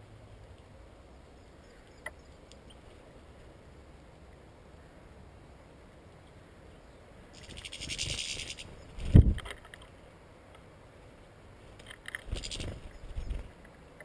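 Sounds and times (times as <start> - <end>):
goldfinches buzzy pulsing calls: 7.4 - 9.0, 12.3 - 13.5.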